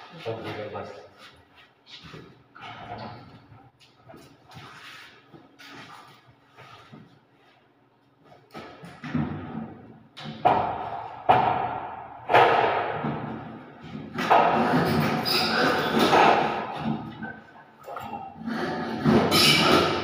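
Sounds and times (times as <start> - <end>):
loud echoing knocks: 10.3 - 17.2.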